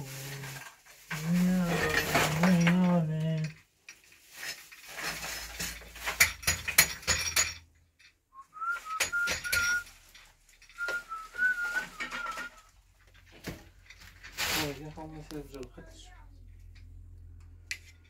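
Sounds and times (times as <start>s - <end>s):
dishes clinking and knocking: 5.0s - 8.1s, 8.8s - 10.0s
person whistling: 8.4s - 9.9s, 10.8s - 12.7s.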